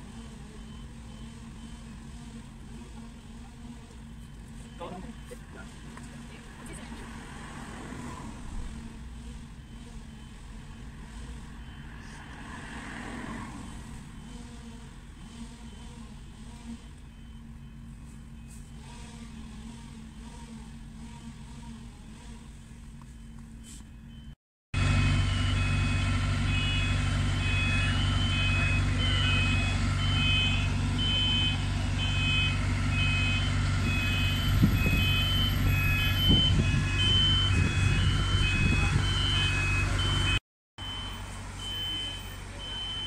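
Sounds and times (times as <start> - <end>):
diesel engine running: 0.0 - 43.0
two-pitch warning beeper: 0.5 - 2.0, 4.0 - 5.8, 17.0 - 19.0, 23.0 - 43.0.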